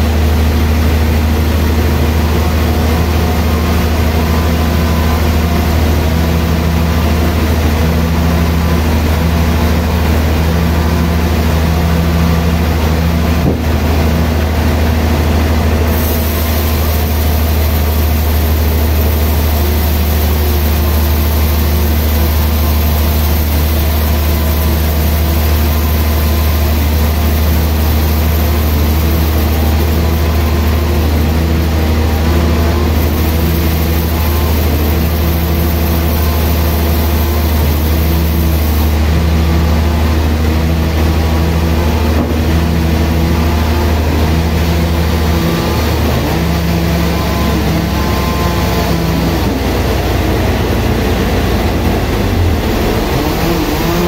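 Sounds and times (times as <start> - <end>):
band saw low drone: 0.0 - 54.0
high hiss: 15.9 - 31.0, 32.9 - 39.0.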